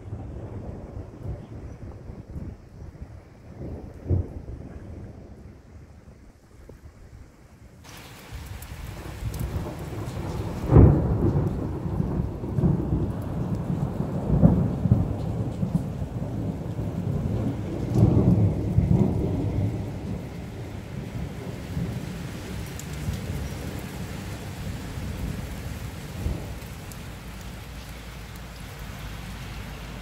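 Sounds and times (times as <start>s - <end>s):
thunder rumbling: 0.0s - 7.2s, 7.9s - 30.0s
steady rain: 0.0s - 30.0s.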